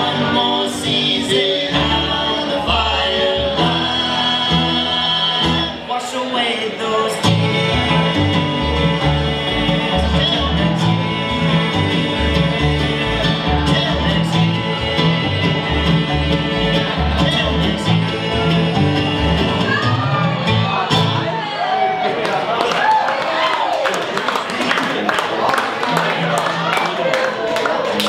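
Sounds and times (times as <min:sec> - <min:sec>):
upright bass plucking: 0:00.0 - 0:06.0, 0:06.9 - 0:21.4
banjo: 0:00.0 - 0:21.4
mandolin: 0:00.0 - 0:21.5
acoustic guitar: 0:00.0 - 0:21.6.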